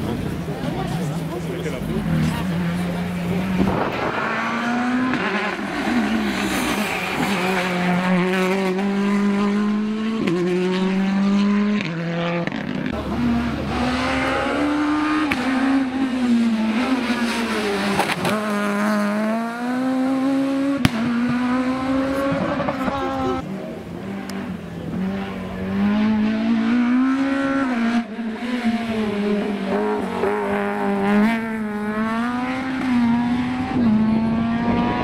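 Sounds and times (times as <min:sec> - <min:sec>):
rally car engine revving: 0:00.0 - 0:35.0.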